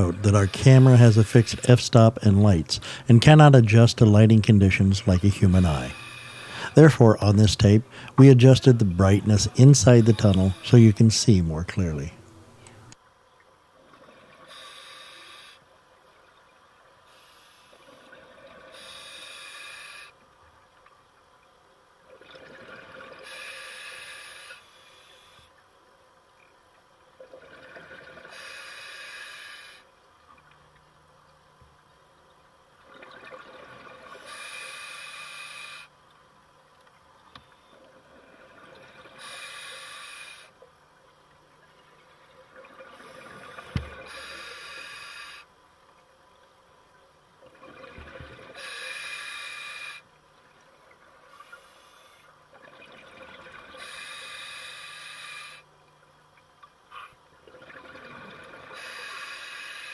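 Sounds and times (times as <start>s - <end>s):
diver breathing through regulator: 5.8s - 6.8s, 14.4s - 15.7s, 18.7s - 20.2s, 23.2s - 25.5s, 28.3s - 29.9s, 34.2s - 35.9s, 39.1s - 40.6s, 43.0s - 45.5s, 48.5s - 50.1s, 53.8s - 55.7s, 58.7s - 59.9s.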